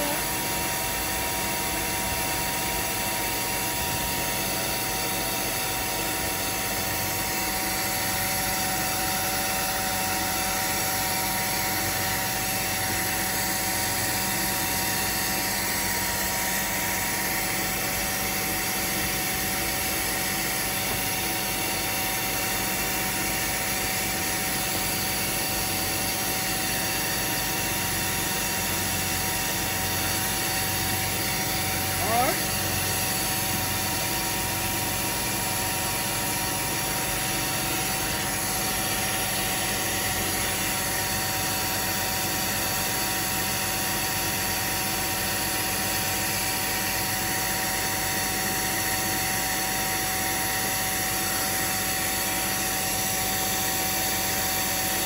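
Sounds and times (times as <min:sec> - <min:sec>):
carpet cleaning machine humming: 0:00.0 - 0:55.0.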